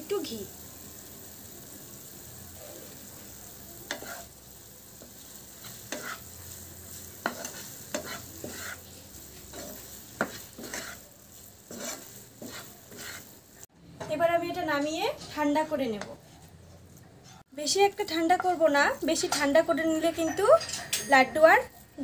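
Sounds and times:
faint frying sizzle: 0.0s - 22.0s
spatula scraping frying pan: 3.8s - 13.7s.

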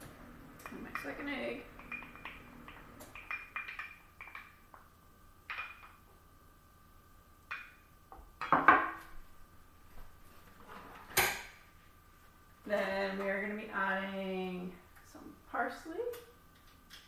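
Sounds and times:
utensils knocking and clattering: 1.8s - 4.6s.

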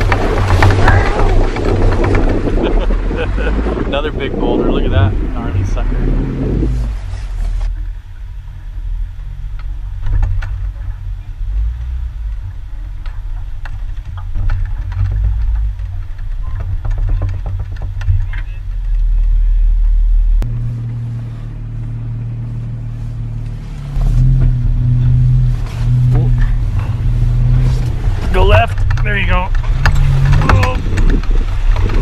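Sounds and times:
tyres knocking over stones: 0.0s - 3.6s
engine running at low revs: 0.0s - 32.0s.

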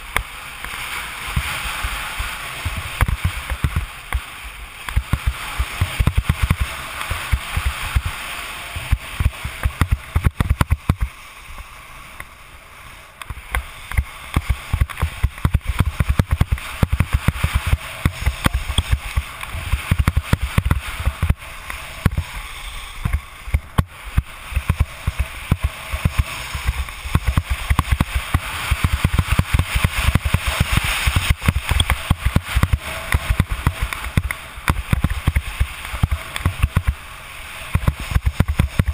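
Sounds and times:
skis scraping over snow: 0.0s - 38.9s
wind buffeting microphone: 13.3s - 38.9s.

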